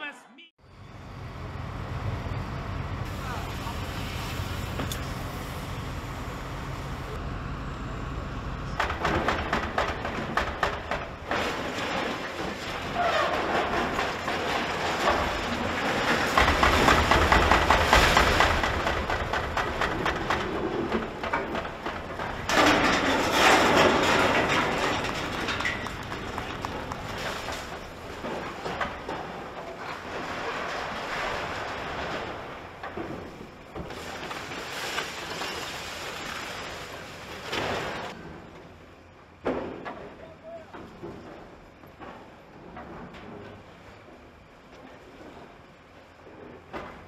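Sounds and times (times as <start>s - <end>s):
heavy machine engine running: 0.6s - 34.6s
debris crunching and clattering: 8.7s - 38.2s.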